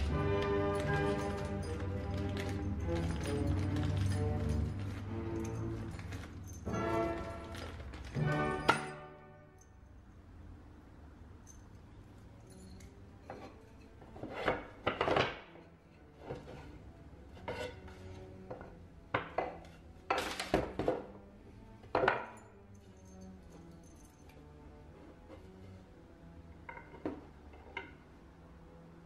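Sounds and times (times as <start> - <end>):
wooden parts knocking together: 18.5 - 21.2, 21.8 - 22.4.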